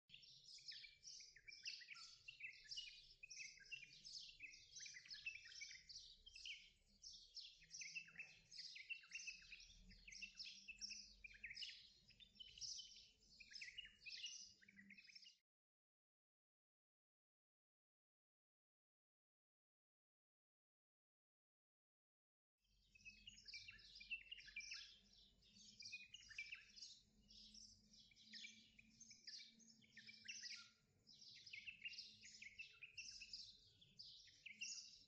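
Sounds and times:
small birds chirping: 0:00.0 - 0:15.5, 0:22.7 - 0:35.0.

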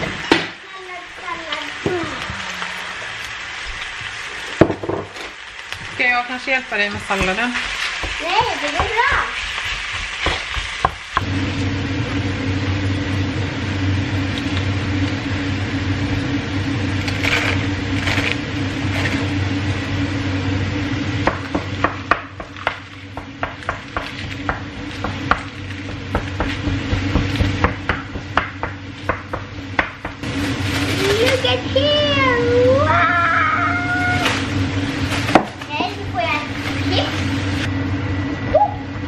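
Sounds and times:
food sizzling in a frying pan: 0:00.0 - 0:37.7
steady low hum: 0:00.0 - 0:39.0
utensil knocking on pan: 0:08.0 - 0:11.0, 0:21.2 - 0:30.2.

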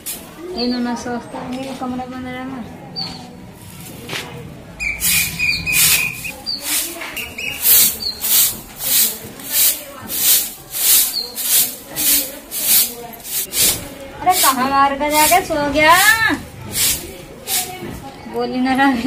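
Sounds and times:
broom sweeping dusty floor: 0:03.6 - 0:18.1.

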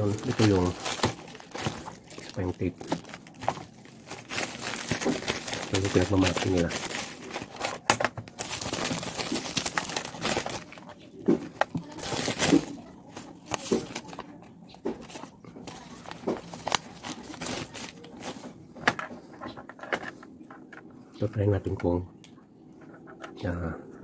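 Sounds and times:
plastic packaging crinkling: 0:00.0 - 0:18.9
paper rustling: 0:00.0 - 0:20.2.

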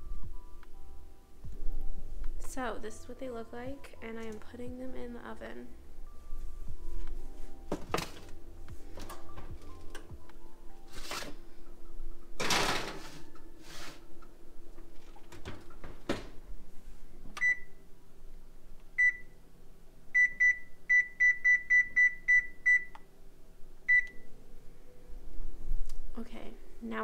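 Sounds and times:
oven door shutting: 0:12.4 - 0:13.2
baking sheet sliding into oven: 0:12.4 - 0:14.0.

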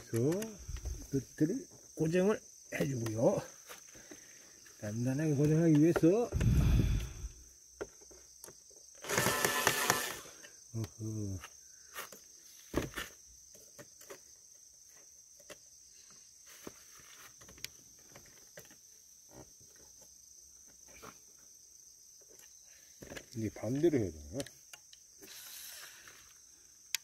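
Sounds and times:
insects chirring: 0:00.0 - 0:27.0.

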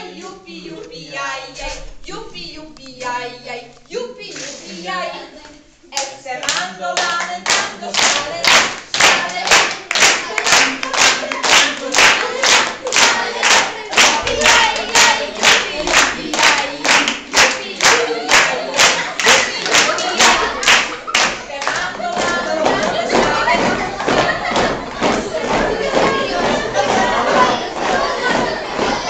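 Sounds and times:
group singing or chanting: 0:00.0 - 0:29.0
people clapping in unison: 0:06.0 - 0:29.0.

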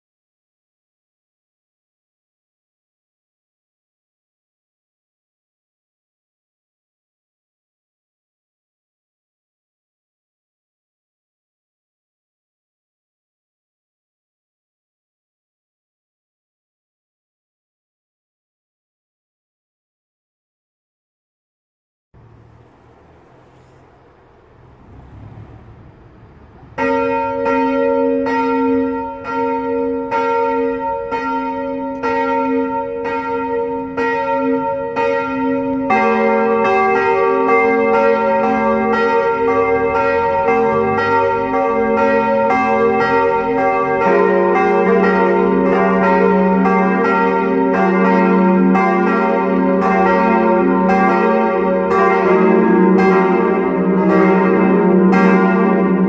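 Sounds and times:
church bells ringing: 0:22.2 - 0:56.0.

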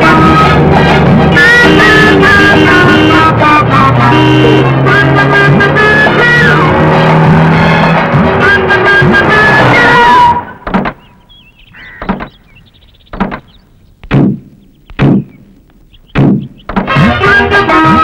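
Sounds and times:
music: 0:00.0 - 0:10.7, 0:16.1 - 0:18.0.

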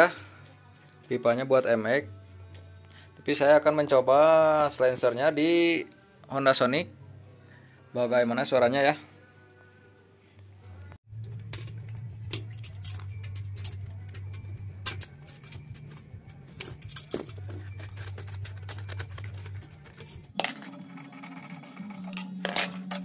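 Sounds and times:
background music: 0:00.0 - 0:23.0
metal exhaust parts clinking: 0:11.3 - 0:21.1, 0:21.7 - 0:23.0.

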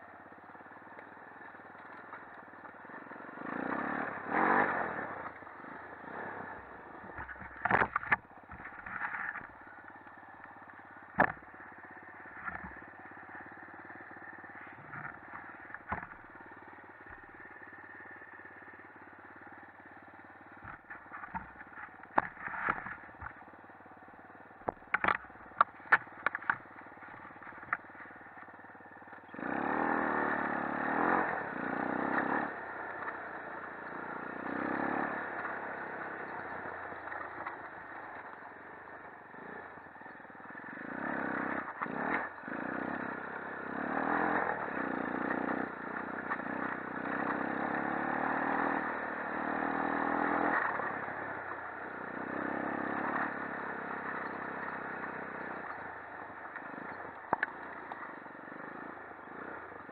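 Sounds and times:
quad engine revving: 0:02.9 - 0:09.5, 0:29.3 - 0:38.3, 0:40.4 - 0:59.9
clatter and sharp knocks: 0:07.1 - 0:09.5, 0:11.1 - 0:11.5, 0:14.9 - 0:16.2, 0:24.6 - 0:26.6.

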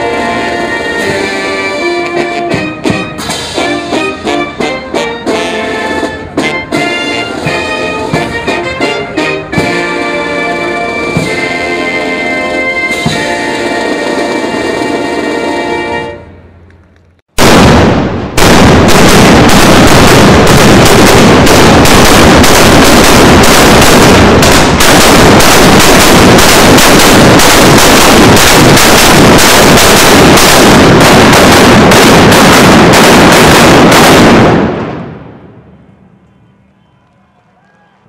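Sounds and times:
cannon blank blasts: 0:17.4 - 0:35.6.

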